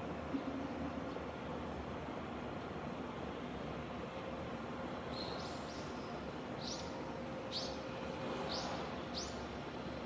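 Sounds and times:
bird chirping: 0:05.1 - 0:06.9, 0:07.5 - 0:07.8, 0:08.5 - 0:09.5.

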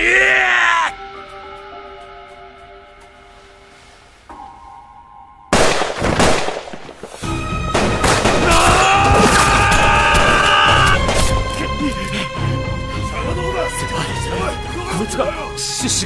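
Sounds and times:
held music chord: 0:00.9 - 0:05.8, 0:11.0 - 0:16.0.

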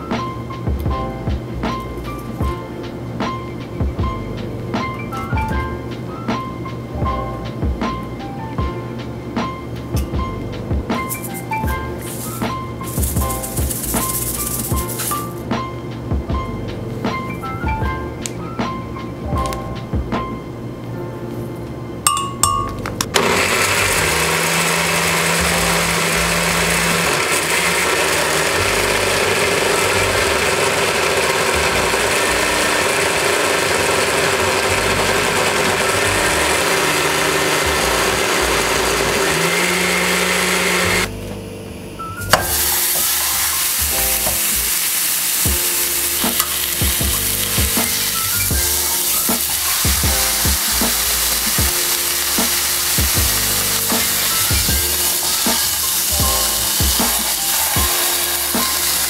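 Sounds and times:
blender running: 0:23.1 - 0:41.1, 0:42.3 - 0:59.0
meat sizzling in a frying pan: 0:42.4 - 0:59.0.

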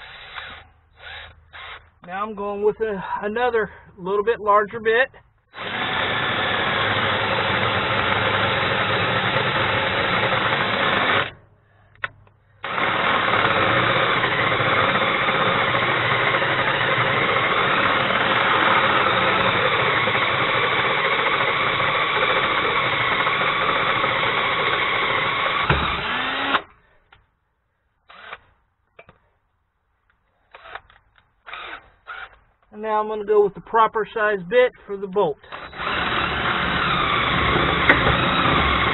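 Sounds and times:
cordless drill boring through steel: 0:00.0 - 0:01.9, 0:05.5 - 0:11.4, 0:12.6 - 0:26.7, 0:28.1 - 0:28.5, 0:30.5 - 0:32.4, 0:35.4 - 0:38.9.

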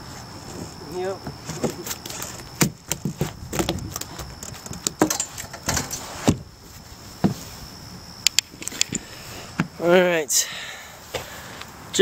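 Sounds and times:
clicks and light rattles: 0:03.0 - 0:06.0.

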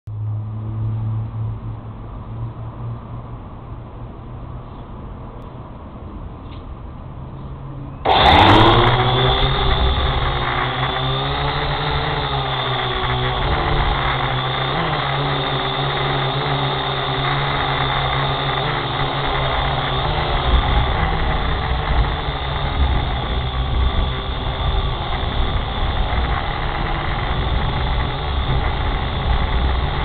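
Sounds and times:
drone motors buzzing: 0:08.1 - 0:30.0.

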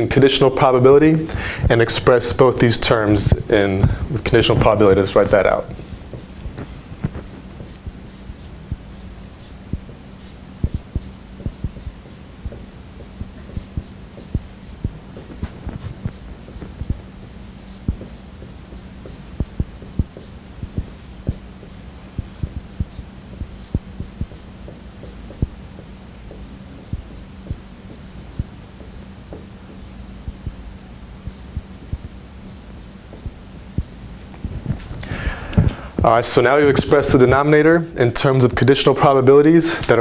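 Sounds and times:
steady low hum: 0:00.0 - 0:40.0
marker squeaking on whiteboard: 0:04.5 - 0:30.0, 0:30.6 - 0:34.2
marker tip tapping board: 0:06.1 - 0:30.5.

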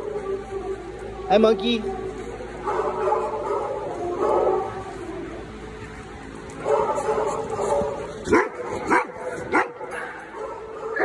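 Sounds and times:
dog barking: 0:02.6 - 0:04.9, 0:06.6 - 0:11.0.

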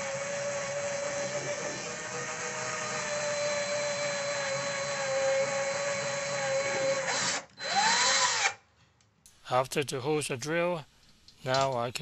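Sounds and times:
cordless drill motor whine: 0:00.0 - 0:08.6.

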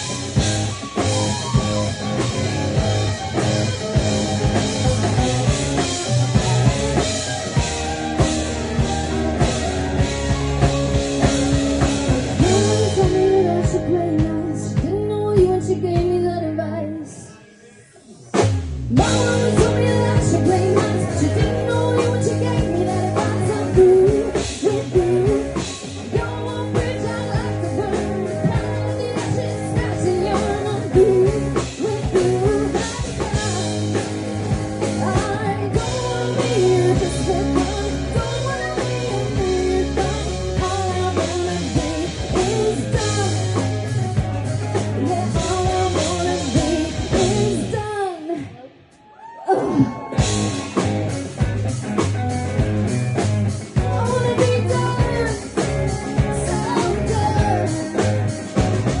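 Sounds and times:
drum kit: 0:00.0 - 0:16.5, 0:18.0 - 0:59.0
electric guitar: 0:00.0 - 0:59.0
woman singing into a microphone: 0:12.3 - 0:17.3, 0:18.9 - 0:34.1, 0:34.8 - 0:43.8, 0:44.9 - 0:48.7, 0:53.8 - 0:58.6.

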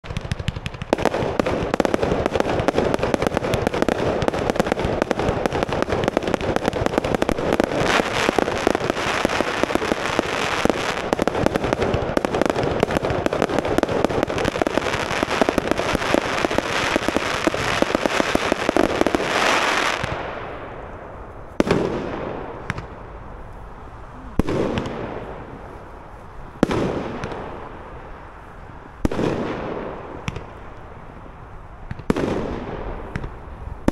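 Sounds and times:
fireworks sharp bangs: 0:00.0 - 0:23.4, 0:24.2 - 0:33.9
fireworks bursting and crackling: 0:00.0 - 0:33.9.

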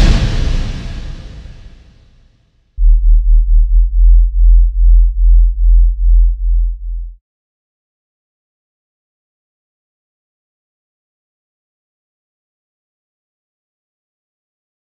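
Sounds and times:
heavy hit: 0:02.8 - 0:07.1
deep synthesized bass pulses: 0:02.8 - 0:07.2.

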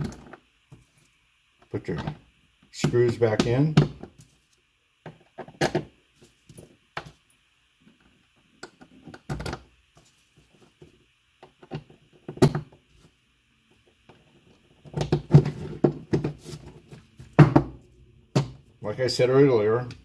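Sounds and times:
faint high hum: 0:00.0 - 0:20.0.

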